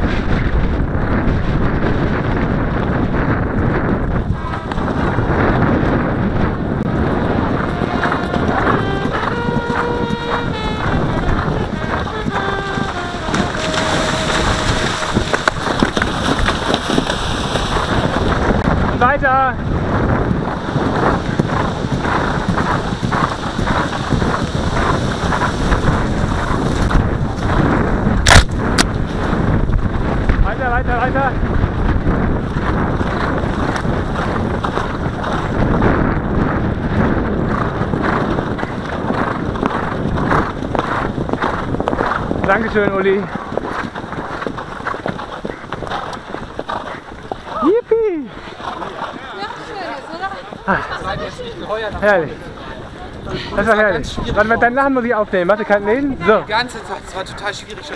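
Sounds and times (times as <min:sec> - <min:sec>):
hoofbeats: 0:00.0 - 0:53.8
wind buffeting microphone: 0:00.0 - 0:57.9
hooves thudding: 0:00.4 - 0:57.9
water splashing: 0:11.6 - 0:18.6.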